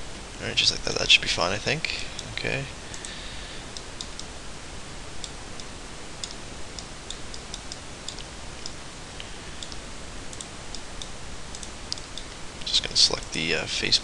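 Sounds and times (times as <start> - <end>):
microphone hiss: 0.0 - 14.0.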